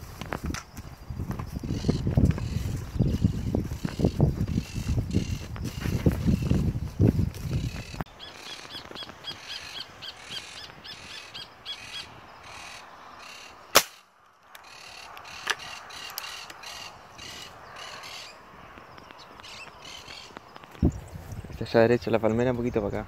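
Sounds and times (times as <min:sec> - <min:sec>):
parakeets squawking: 0:07.6 - 0:13.5, 0:19.3 - 0:20.4
air rifle shot: 0:13.7 - 0:14.0.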